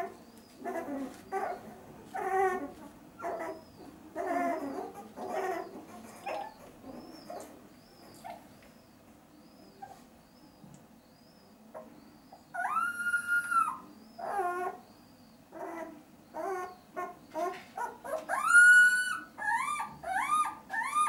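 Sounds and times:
puppies whimpering and crying: 0.0s - 8.5s, 11.8s - 14.9s, 15.5s - 21.0s.

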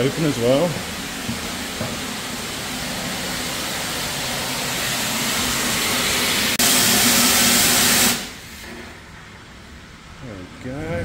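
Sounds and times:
steam hissing from a pipe drain: 0.0s - 8.8s.

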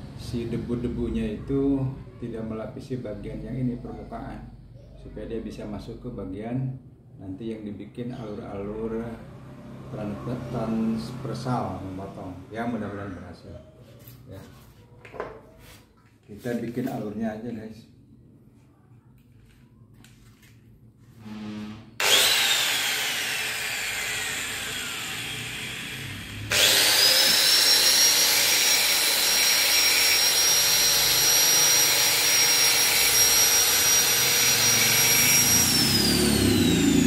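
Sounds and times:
angle grinder whining: 21.2s - 37.0s
grinder cutting brake lining: 22.0s - 37.0s.

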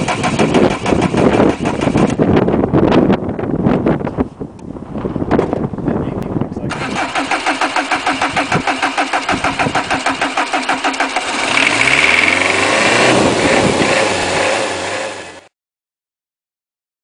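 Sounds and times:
starter motor cranking engine: 0.0s - 2.2s, 6.7s - 15.4s
diesel engine running: 6.7s - 15.5s.

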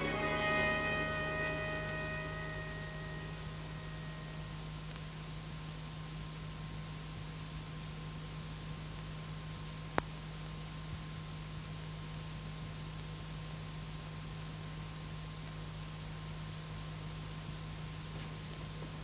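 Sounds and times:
film soundtrack hiss and hum: 0.0s - 4.2s
faint steady whine: 0.0s - 11.2s.

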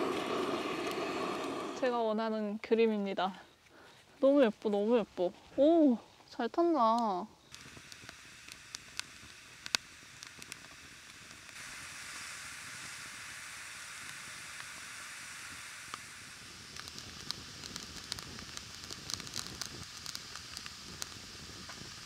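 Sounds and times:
wood fire crackling and popping: 0.0s - 2.0s, 6.7s - 22.0s
steady hissing boiling sound: 0.0s - 22.0s.

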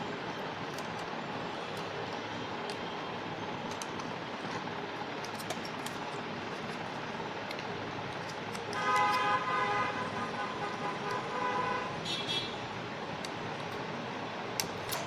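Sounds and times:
steady background noise: 0.0s - 15.0s
ribbon cable clicks: 14.5s - 15.0s.

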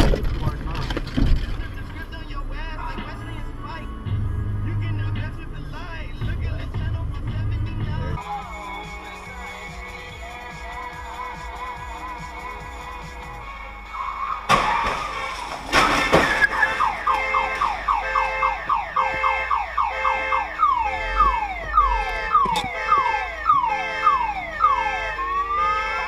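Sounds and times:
car crash: 0.0s - 3.4s, 14.4s - 19.6s
car alarm: 14.0s - 26.0s.

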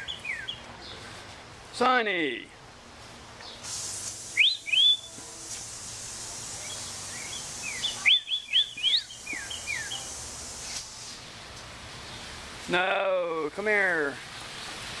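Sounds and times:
songbird chirping: 0.0s - 1.3s, 4.3s - 5.2s, 6.0s - 10.8s.

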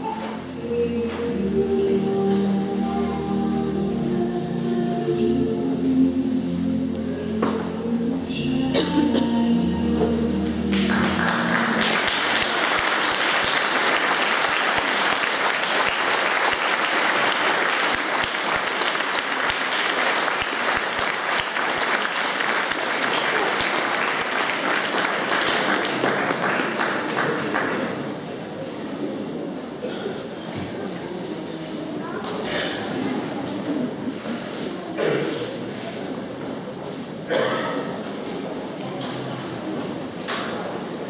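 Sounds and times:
music: 0.0s - 13.2s
audience applauding: 10.7s - 28.3s.

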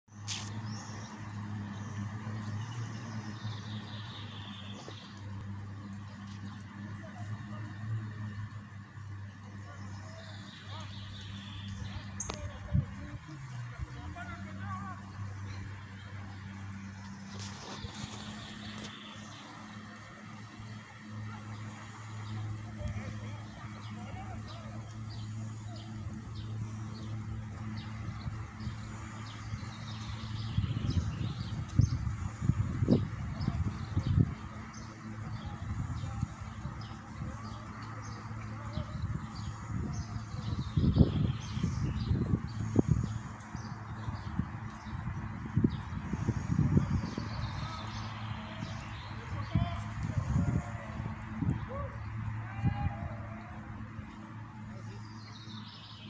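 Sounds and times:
outboard motor droning: 0.1s - 56.0s.

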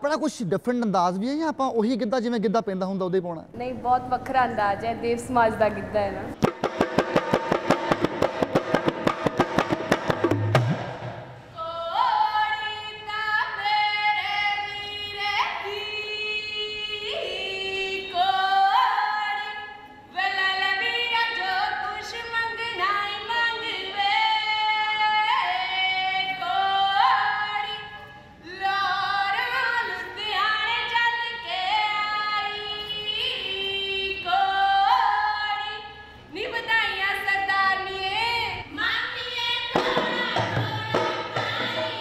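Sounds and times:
hand drum beaten rhythmically: 6.4s - 11.2s, 39.7s - 42.0s
woman singing unaccompanied: 11.5s - 42.0s.

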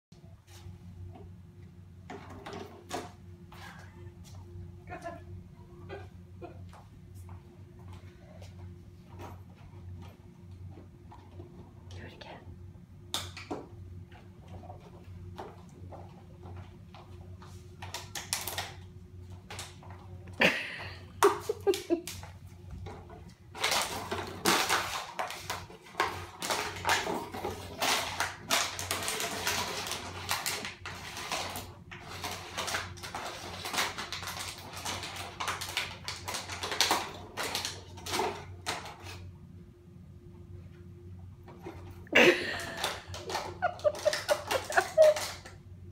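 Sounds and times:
plastic bottle crinkling: 23.5s - 39.2s, 42.2s - 45.5s.

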